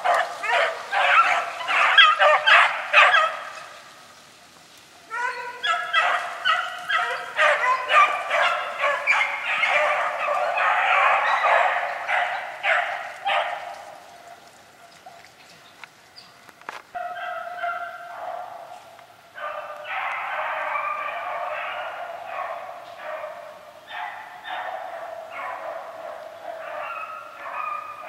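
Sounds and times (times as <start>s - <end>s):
beagles baying: 0.0s - 3.9s, 5.1s - 15.3s, 16.9s - 28.0s.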